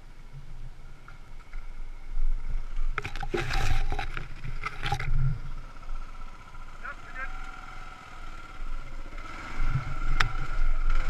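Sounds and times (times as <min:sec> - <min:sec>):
motorcycle engine at low revs: 0:01.3 - 0:11.0
water and mud splashing: 0:02.9 - 0:05.4.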